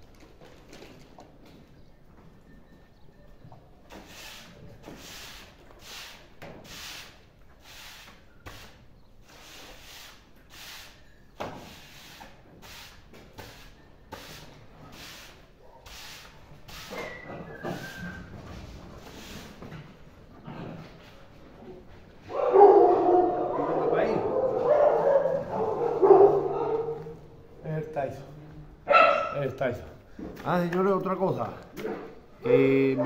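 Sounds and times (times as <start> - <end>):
push broom sweeping floor: 3.9 - 19.8.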